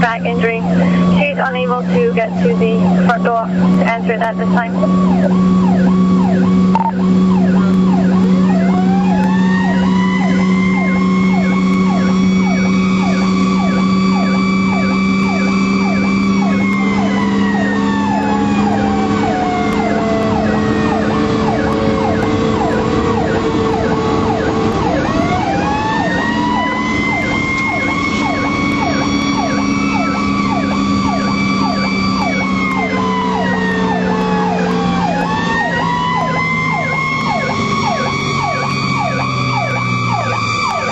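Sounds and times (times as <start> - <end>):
fire engine siren wail: 0.0 - 40.9
fire engine siren yelp: 0.0 - 40.9.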